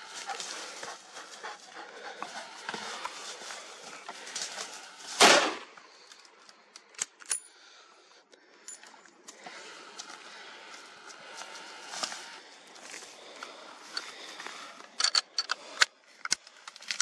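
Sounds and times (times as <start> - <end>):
footsteps through dry brush: 0.0 - 5.7, 9.6 - 14.8
gunshot with echo: 5.2 - 5.7.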